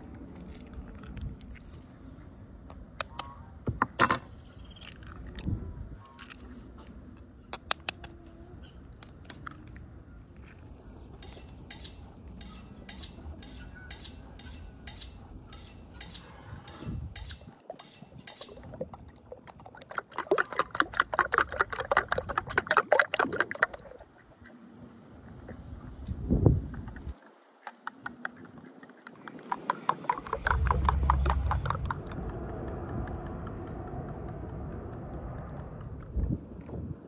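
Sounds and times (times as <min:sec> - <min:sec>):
sharp ticks: 0:27.7 - 0:36.6.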